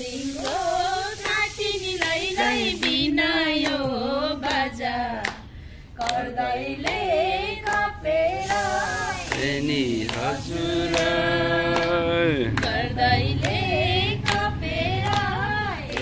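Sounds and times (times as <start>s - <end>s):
people singing together: 0.0s - 16.0s
hands clapping in time: 2.8s - 3.0s, 5.2s - 7.0s, 7.6s - 7.9s, 9.3s - 12.8s, 14.2s - 15.3s.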